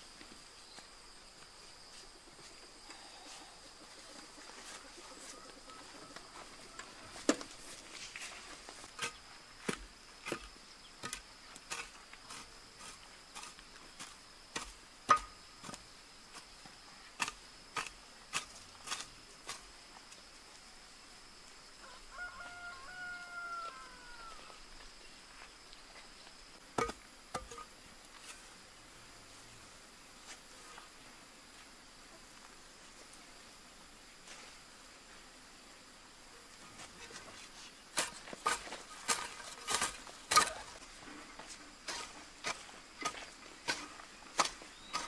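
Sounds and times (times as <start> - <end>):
high insect drone: 0.0 - 45.0
rooster crowing: 4.9 - 7.2, 21.8 - 24.6
hoe chopping into soil: 8.9 - 16.5, 17.2 - 19.7, 26.8 - 27.7, 37.9 - 40.8, 41.4 - 45.0.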